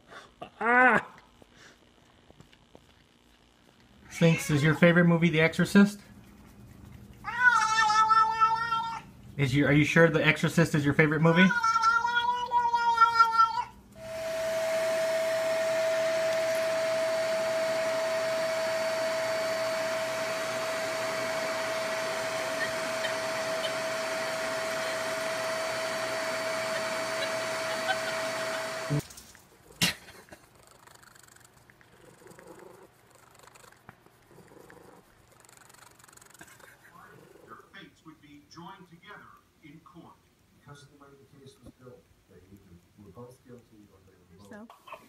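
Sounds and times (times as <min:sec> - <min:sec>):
cat yowling: 0:04.1 - 0:04.8, 0:07.2 - 0:09.1, 0:11.2 - 0:13.8
vacuum cleaner running: 0:14.0 - 0:29.1.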